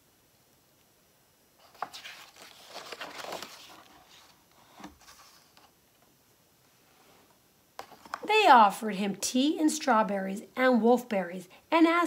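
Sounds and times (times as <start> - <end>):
book page turning: 1.6 - 5.8, 7.8 - 8.3.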